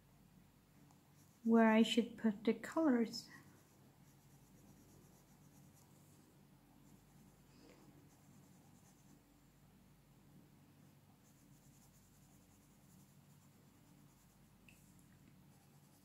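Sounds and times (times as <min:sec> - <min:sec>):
pencil scratching on paper: 0:03.3 - 0:05.9, 0:08.0 - 0:09.2, 0:11.2 - 0:14.5, 0:15.5 - 0:16.0.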